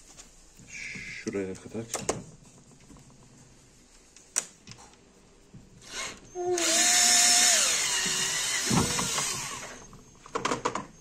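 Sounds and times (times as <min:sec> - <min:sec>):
cordless drill boring into plastic: 0:05.8 - 0:09.8.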